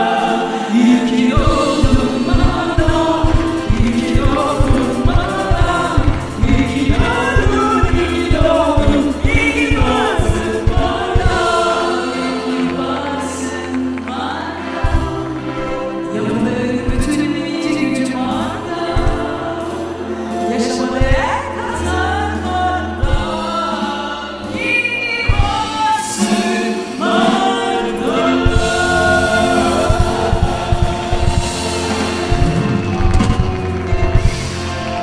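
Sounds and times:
choir singing: 0.0 - 35.0
drums and bass: 0.9 - 12.7, 14.8 - 15.9, 16.8 - 19.8, 21.0 - 35.0.

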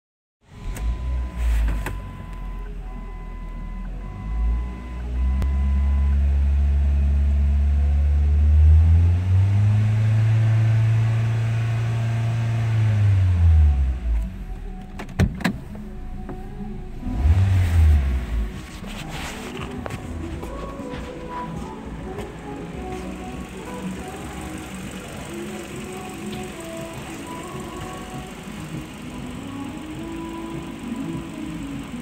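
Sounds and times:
car engine running: 0.4 - 32.0
dashboard chime beeping: 0.7 - 6.2.

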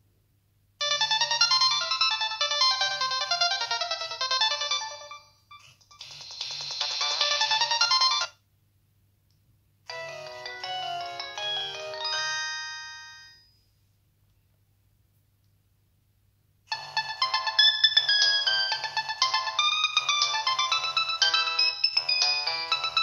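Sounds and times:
mobile phone ringtones: 0.8 - 8.3, 9.9 - 13.6, 16.7 - 23.0.

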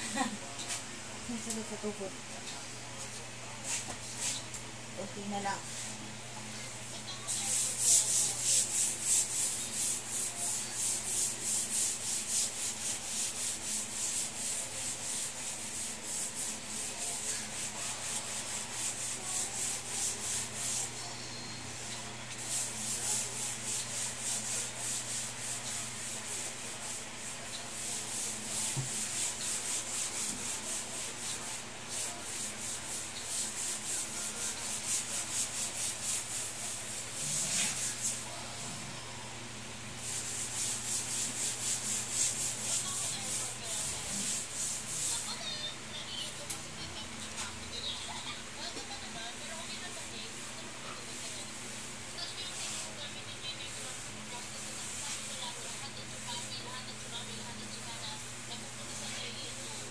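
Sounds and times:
rag scrubbing wooden floor: 7.3 - 20.9, 22.4 - 38.3, 40.0 - 45.7.

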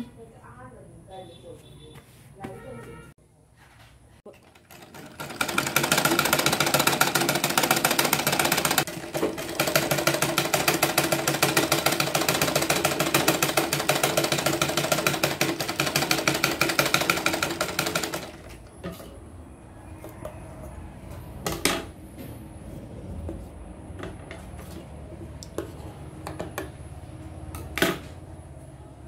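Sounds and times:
sewing machine clattering: 4.3 - 18.6.

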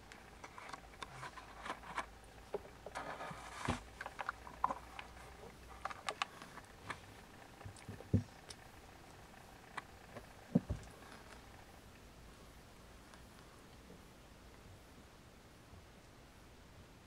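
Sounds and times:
dull thumps: 7.8 - 8.4, 10.5 - 11.2.

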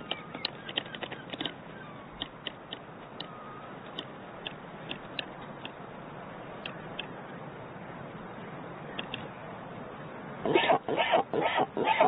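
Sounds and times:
bird bills clacking: 0.0 - 2.4.

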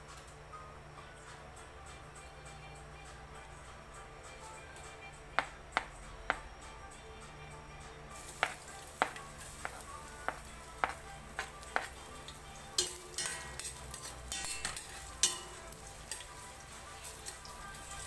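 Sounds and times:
ginger sizzling in hot oil: 8.1 - 18.0
metal spoon scraping a pot: 11.4 - 18.0.

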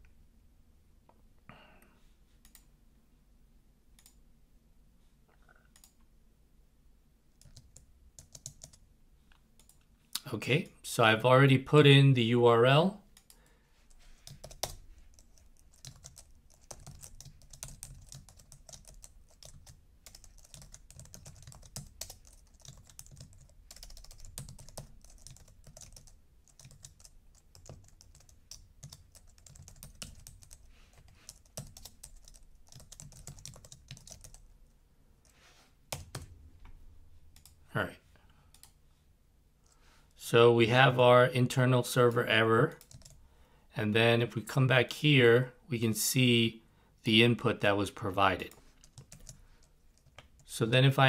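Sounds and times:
computer keyboard typing: 7.4 - 8.8, 14.2 - 34.4, 35.9 - 36.3, 42.8 - 43.2, 48.8 - 49.4, 50.0 - 50.4.

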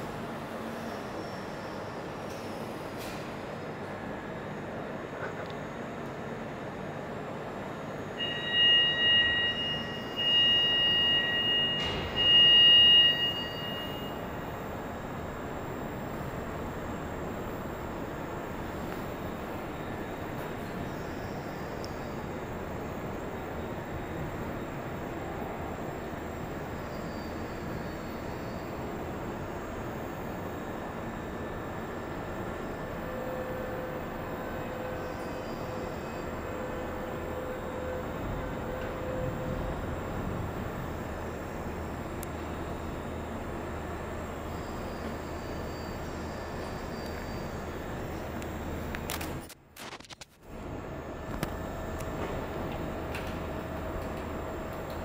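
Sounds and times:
machinery hum: 0.0 - 55.0
high-pitched steady tone: 8.2 - 14.5.

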